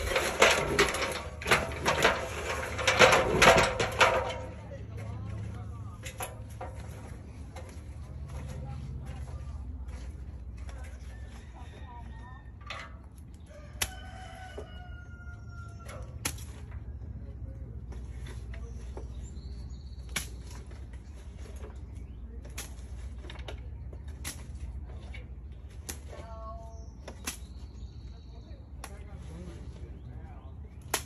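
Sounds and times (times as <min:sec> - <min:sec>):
debris clattering in gutter: 0:00.0 - 0:08.0
rooster crowing: 0:11.0 - 0:12.5, 0:13.5 - 0:16.2.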